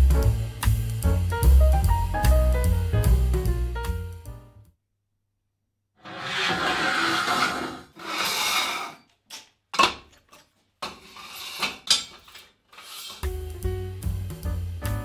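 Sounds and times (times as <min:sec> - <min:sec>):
steel tubing scraping across table: 0:06.0 - 0:09.1, 0:10.8 - 0:13.2.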